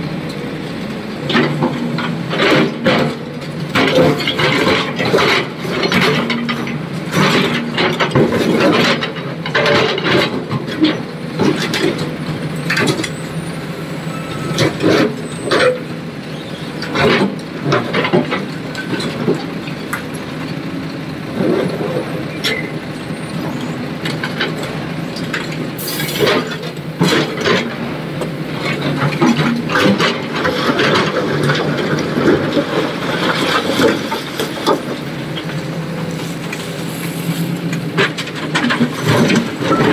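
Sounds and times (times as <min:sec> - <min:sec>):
heavy diesel machinery running: 0:00.0 - 0:39.9
brief air hiss: 0:25.8 - 0:26.2
clanks of stone and steel: 0:38.0 - 0:39.9.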